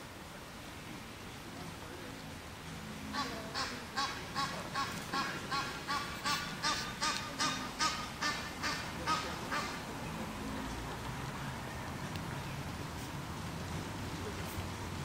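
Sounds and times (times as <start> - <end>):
goose honking: 3.1 - 9.8.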